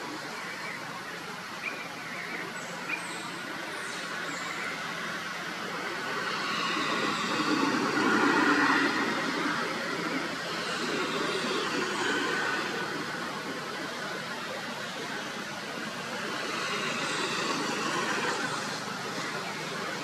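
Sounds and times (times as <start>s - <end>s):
vehicle passing: 4.8s - 20.0s.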